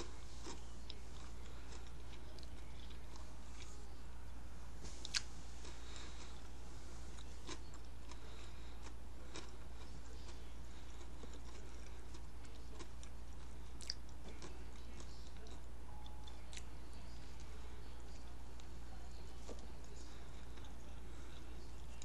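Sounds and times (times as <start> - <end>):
person chewing food: 0.0 - 16.8, 19.4 - 22.0
steady low hum: 0.0 - 22.0.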